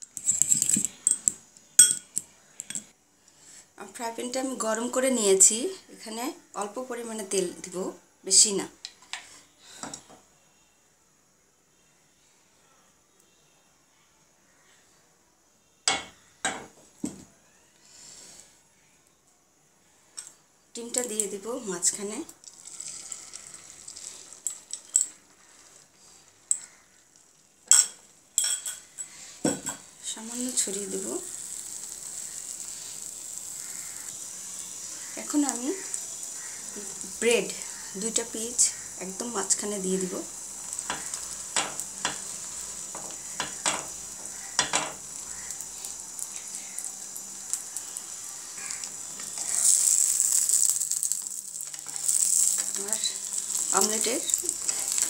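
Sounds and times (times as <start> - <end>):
metal spoon clinking on glass bowl: 1.0 - 2.8, 27.7 - 29.1
egg frying in oil: 20.8 - 55.0.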